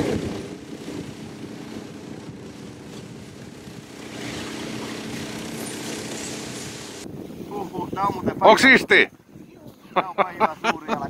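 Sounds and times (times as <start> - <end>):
snowmobile engine droning: 0.0 - 8.7.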